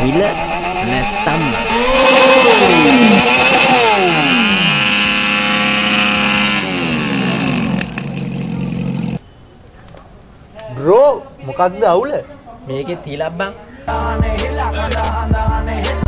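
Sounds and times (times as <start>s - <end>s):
motor scooter engine: 0.0s - 9.2s.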